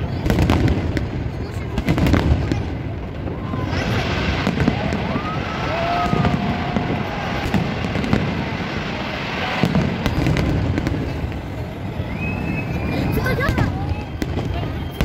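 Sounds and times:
firework bangs and crackle: 0.0 - 15.0
fireworks bursting: 0.0 - 15.0.

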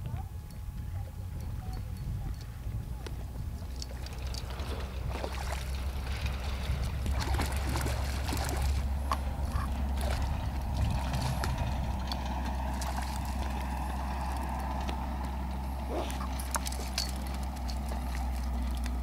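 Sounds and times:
steady low rumble: 0.0 - 19.0
fish splashing in water: 3.9 - 14.8.

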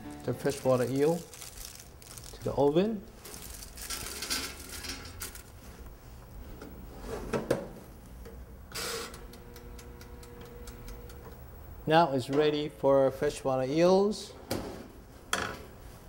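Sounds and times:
rustling and handling: 0.0 - 7.2
oven hum: 2.4 - 15.0.

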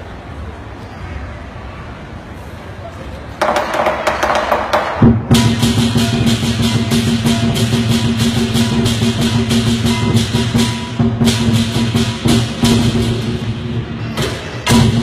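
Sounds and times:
drum beating rhythm: 4.6 - 15.0
cymbals crashing: 5.0 - 15.0
ringing gong: 5.4 - 12.4.

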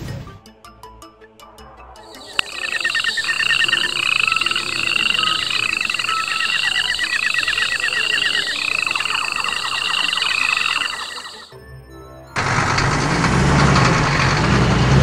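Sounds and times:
rising chirp calls: 2.1 - 11.5
fast pulsing trill: 2.2 - 11.5.

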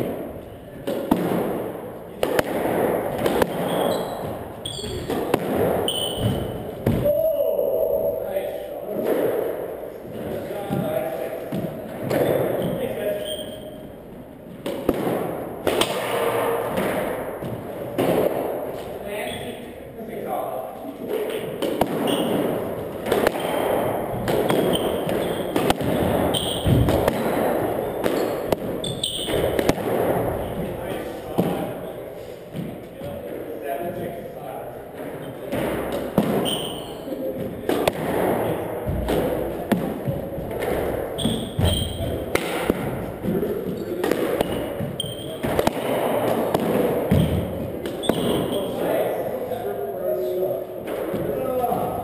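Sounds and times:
squash ball smacks: 0.0 - 7.1, 14.5 - 19.0, 21.1 - 31.8, 35.0 - 48.6
shoes squeaking on hardwood floor: 3.2 - 7.2, 11.6 - 14.1, 20.9 - 29.7, 35.0 - 37.8, 38.8 - 49.0.

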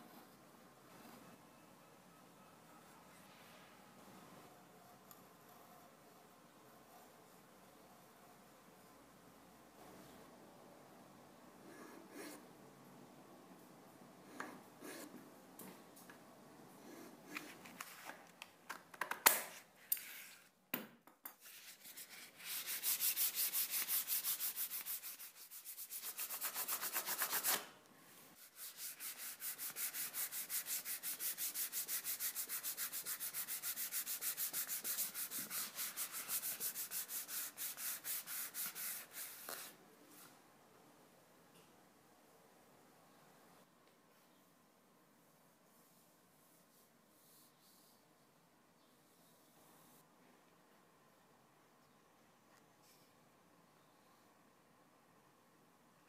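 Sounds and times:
hand sanding wood: 21.5 - 27.6, 28.4 - 39.4.

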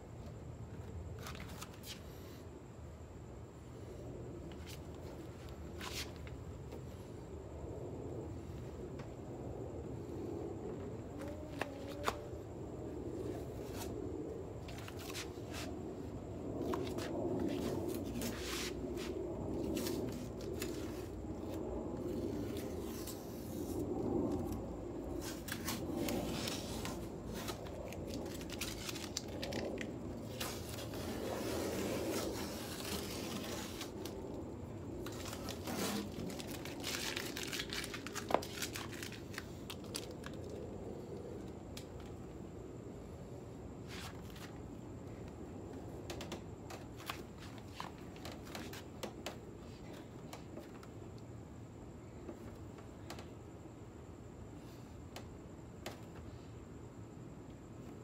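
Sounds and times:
steady low hum: 0.0 - 58.0
paper crinkling: 25.2 - 34.2, 35.0 - 40.5
tape being pulled and torn: 25.2 - 34.2, 35.0 - 40.4.

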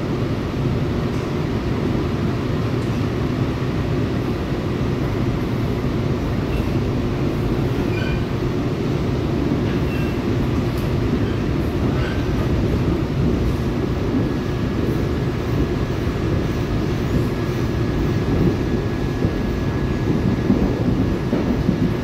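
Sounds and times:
train car running rumble: 0.0 - 22.0
faint brief squeaks: 7.8 - 8.3.

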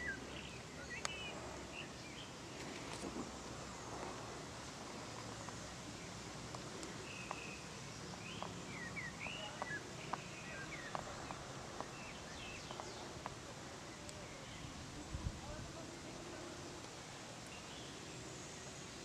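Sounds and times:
outdoor background noise: 0.0 - 19.0
sharp bird ticks: 6.5 - 13.4.

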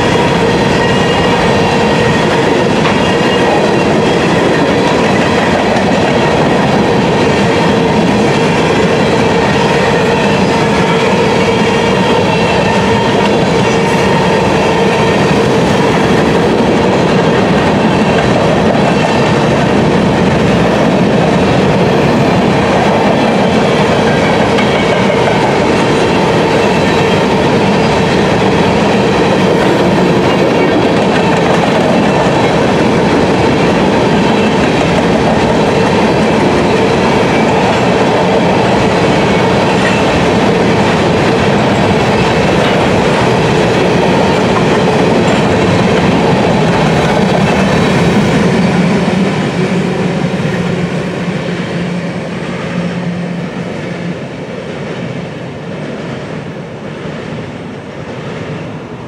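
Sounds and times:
train wheels clickety-clack: 0.0 - 59.0.

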